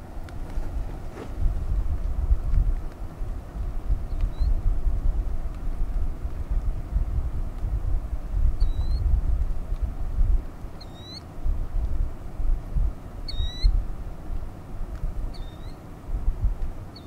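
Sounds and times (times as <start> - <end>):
wind rumbling on microphone: 0.0 - 17.0
bird squeaky call: 10.8 - 11.2, 13.3 - 13.7, 15.3 - 15.8.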